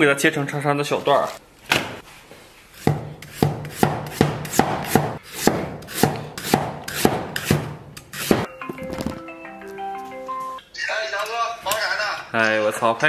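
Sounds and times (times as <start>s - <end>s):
cleaver chopping on wooden board: 2.8s - 8.5s.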